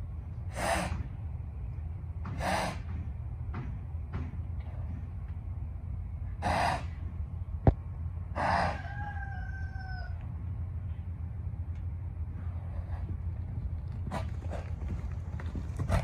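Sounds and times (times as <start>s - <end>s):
horse snorting: 0.5s - 1.1s, 2.3s - 2.9s, 6.4s - 7.0s, 8.3s - 8.8s
rooster crowing: 8.4s - 10.3s.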